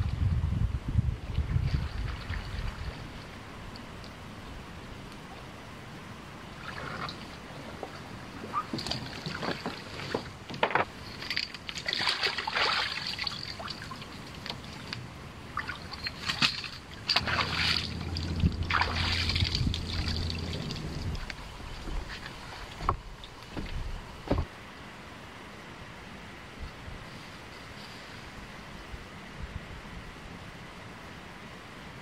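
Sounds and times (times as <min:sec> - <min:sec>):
low steady hum: 0:00.0 - 0:32.0
paddle splashing water: 0:06.5 - 0:24.5
small knocks: 0:08.7 - 0:11.0.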